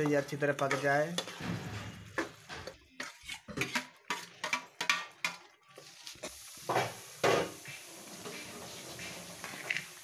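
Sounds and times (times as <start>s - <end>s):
metal spoon scraping pan: 0.0s - 6.3s
mixture sizzling: 0.0s - 10.0s.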